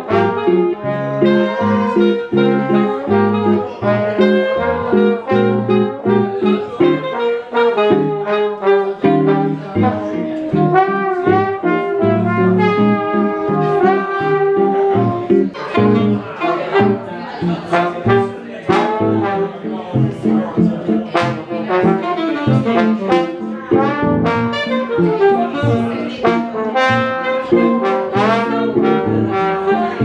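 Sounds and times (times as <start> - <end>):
alto saxophone: 0.0 - 30.0
rhythm guitar: 0.0 - 30.0
trombone: 0.0 - 30.0.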